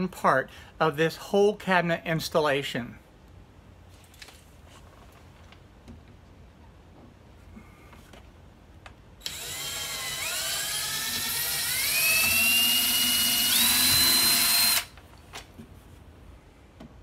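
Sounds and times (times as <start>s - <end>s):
cordless drill motor whine: 9.2s - 15.0s.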